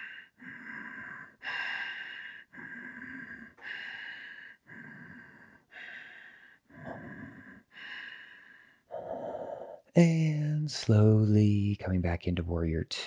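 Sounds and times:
man breathing in and out: 0.0 - 9.9.

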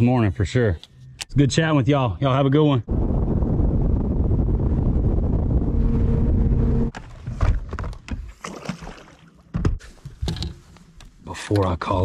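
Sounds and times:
low wind rumble: 1.4 - 7.6
boat motor humming: 5.3 - 6.9.

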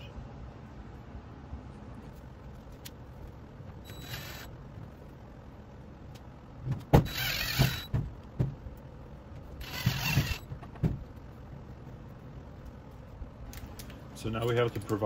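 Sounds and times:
cordless drill driving screws: 3.9 - 4.5, 7.0 - 7.9, 9.6 - 10.4
knocks: 6.6 - 8.6, 9.8 - 11.1.

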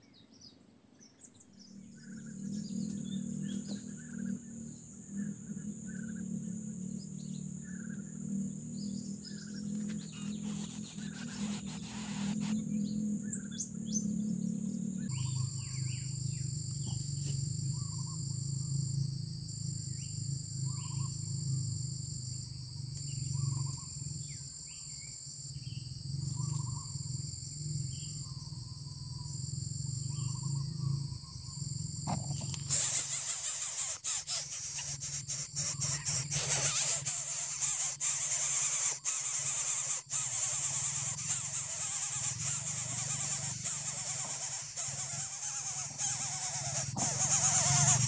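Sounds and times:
high insect drone: 0.0 - 48.0
steady low hum: 0.4 - 48.0
chicks begging with harsh hissing: 9.6 - 12.7, 32.1 - 48.0
short bird calls: 32.6 - 48.0.

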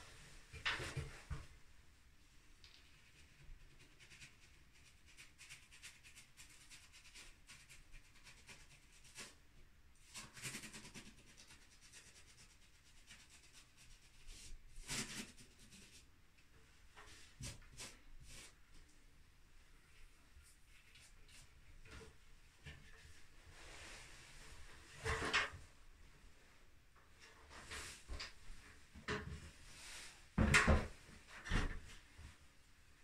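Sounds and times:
scratchy brush strokes: 2.7 - 9.4, 10.0 - 16.1, 17.1 - 18.9, 19.8 - 22.1
brush scrape: 10.0 - 16.1, 17.0 - 18.7.

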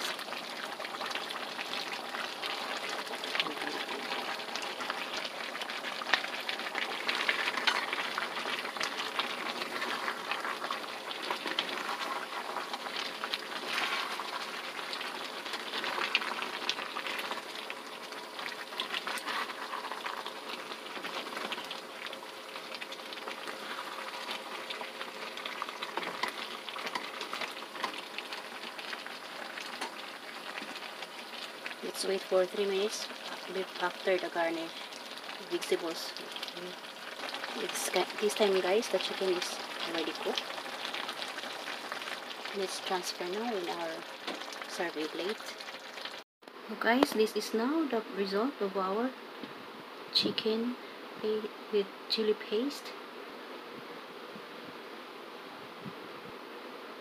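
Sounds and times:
food sizzling and bubbling in a pan: 0.0 - 57.0
wooden spatula scraping a pan: 13.6 - 14.5, 18.8 - 21.8.

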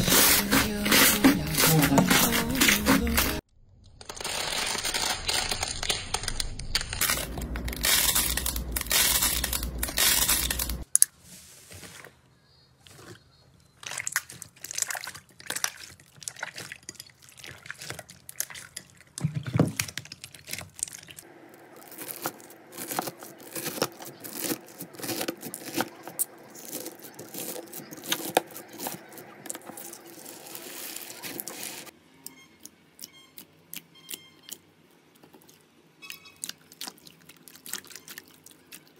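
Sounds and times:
slime crackling and popping: 19.8 - 31.8.

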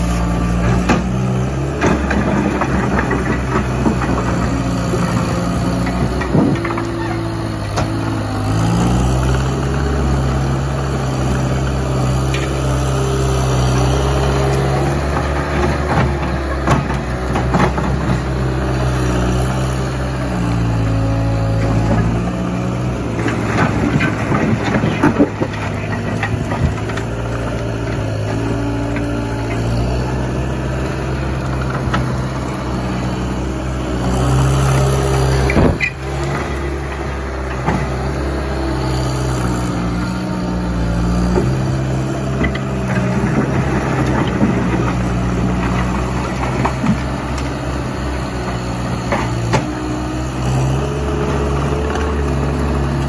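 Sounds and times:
diesel engine under load: 0.0 - 53.0
asphalt cracking and scraping: 13.5 - 49.8.

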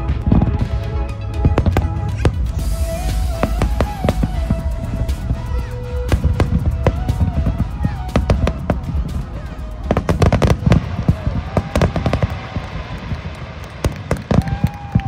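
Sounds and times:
firework shells bursting: 6.1 - 15.0.

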